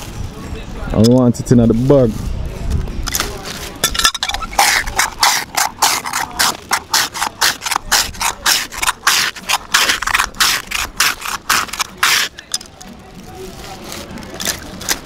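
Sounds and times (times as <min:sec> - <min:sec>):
ice shaver scraping ice: 0:03.4 - 0:12.6.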